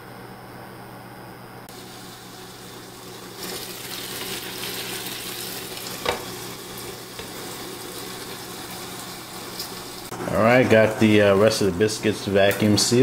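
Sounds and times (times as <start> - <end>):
bacon sizzling in a pan: 1.7 - 10.1.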